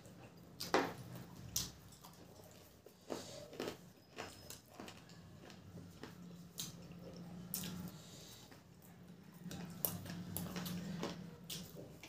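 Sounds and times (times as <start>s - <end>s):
wet chewing and mouth smacks: 0.0s - 12.0s
low steady hum: 4.5s - 12.0s.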